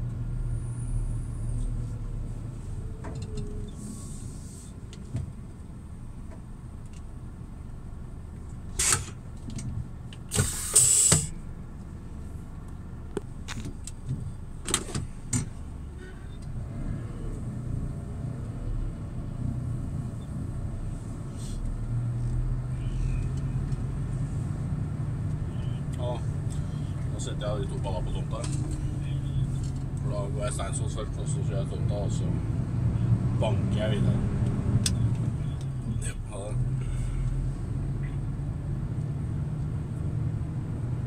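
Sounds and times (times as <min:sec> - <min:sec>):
loud air hiss: 0:10.3 - 0:11.3.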